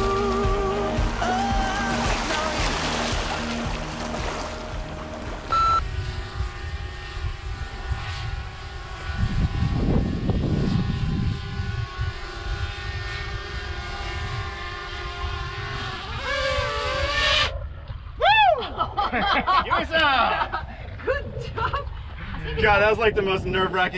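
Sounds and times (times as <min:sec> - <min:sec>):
drone propellers whining: 0:00.0 - 0:18.2
wind rumble on microphone: 0:00.0 - 0:19.1, 0:20.5 - 0:23.9.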